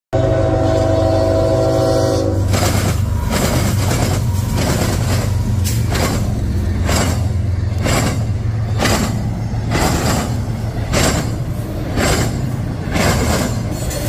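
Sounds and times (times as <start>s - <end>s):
locomotive horn: 0.1s - 3.3s
locomotive engine rumbling: 0.2s - 14.0s
train wheels banging over crossing: 2.4s - 14.0s.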